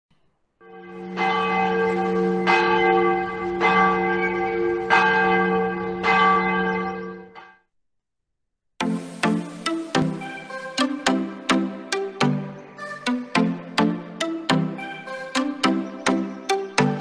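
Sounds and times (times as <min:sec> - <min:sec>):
large bell tolling: 0:00.6 - 0:07.5.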